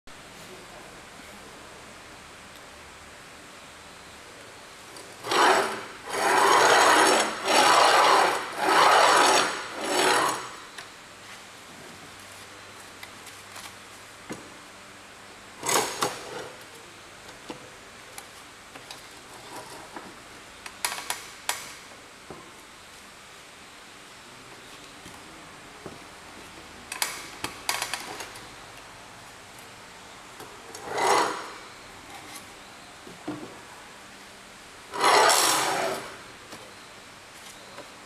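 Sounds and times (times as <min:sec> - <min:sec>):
wooden vise jaw scraping on rods: 0:05.2 - 0:10.6, 0:30.7 - 0:31.6, 0:34.9 - 0:36.1.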